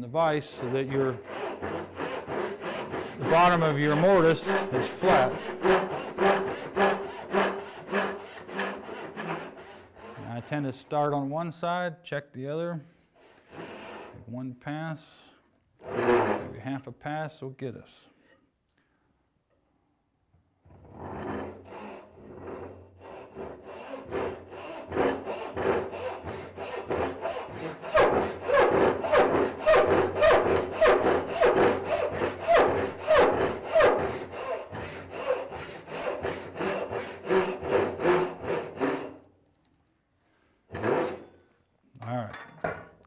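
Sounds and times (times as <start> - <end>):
hand saw sawing wood: 0.0 - 11.0, 13.1 - 14.2, 15.8 - 16.6, 20.7 - 39.2, 40.7 - 41.3.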